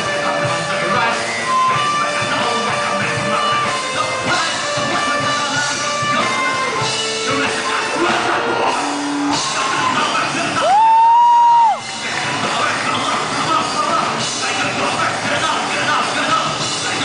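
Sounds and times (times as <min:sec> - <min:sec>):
electric guitar melody: 0:00.0 - 0:10.4
live rock band playing: 0:00.0 - 0:17.0.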